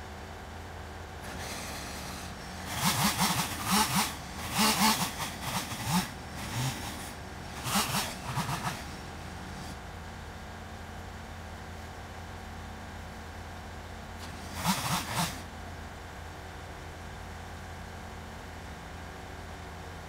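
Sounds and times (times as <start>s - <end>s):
backloader engine idling: 0.0s - 20.0s
loud rattling and scraping: 1.2s - 9.8s, 14.2s - 15.5s.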